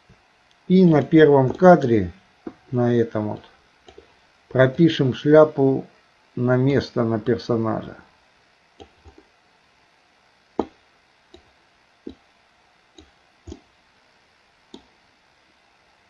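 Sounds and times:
mouse and keyboard clicks: 0:08.8 - 0:09.2.

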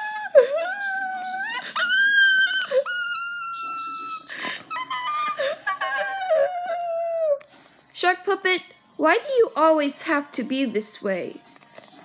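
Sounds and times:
person mock crying wails: 0:00.0 - 0:07.4.

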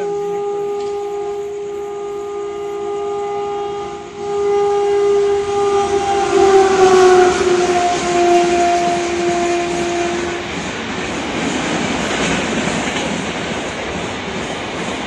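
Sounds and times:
locomotive horn: 0:00.0 - 0:10.6
rush of passing train: 0:00.0 - 0:15.0.

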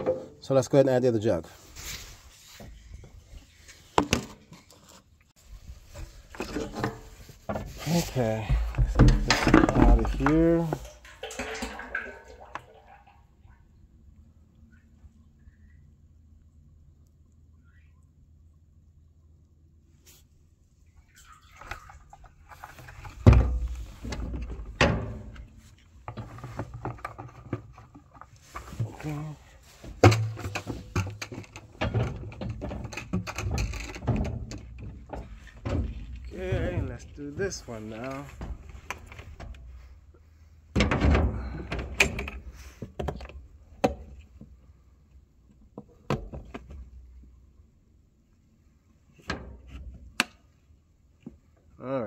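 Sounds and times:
plastic pail knocks and rustling: 0:03.9 - 0:05.0, 0:05.8 - 0:13.2, 0:21.7 - 0:39.9, 0:40.7 - 0:44.2.

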